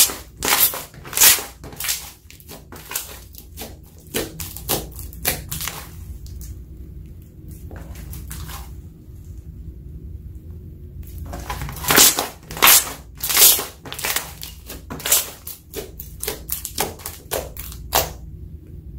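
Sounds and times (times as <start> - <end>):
slime popping and crackling: 0.0 - 6.4, 11.3 - 18.2
low steady hum: 0.0 - 18.9.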